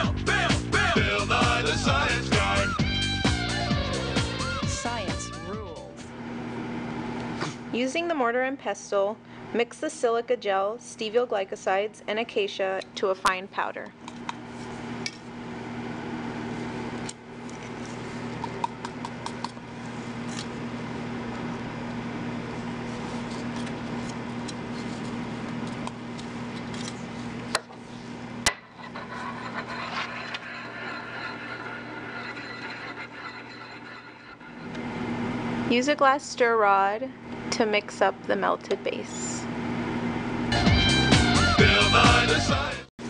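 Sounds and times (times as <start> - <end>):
low hum: 28.0 - 38.5
pestle grinding powder in mortar: 28.6 - 34.8.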